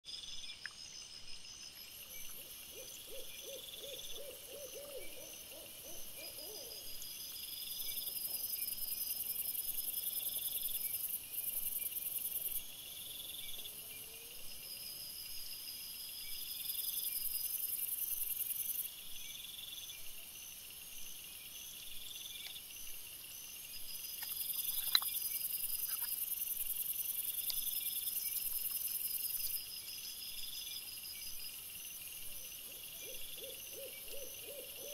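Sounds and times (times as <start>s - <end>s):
crickets chirping: 0.1s - 34.9s
owl hooting: 2.7s - 6.8s, 32.7s - 34.9s.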